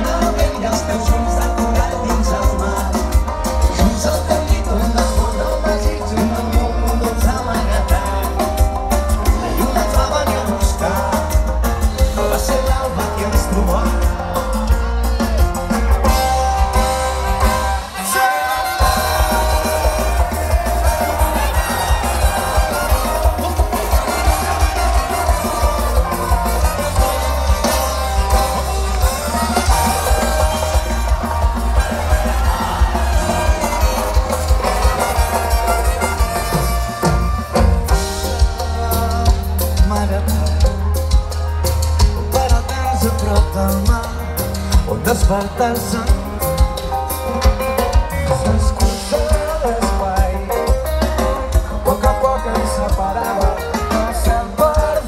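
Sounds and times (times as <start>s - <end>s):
voices singing: 0.0s - 40.9s
heavy bass: 0.0s - 55.0s
live band playing: 0.0s - 55.0s
steady drum beat: 0.0s - 55.0s.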